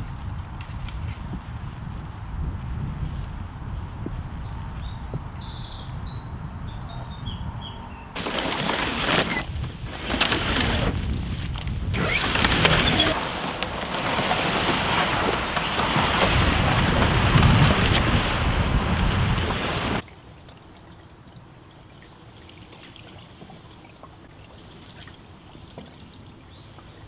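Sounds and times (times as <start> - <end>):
wind buffeting microphone: 0.0 - 20.0
small birds chirping: 4.4 - 8.2.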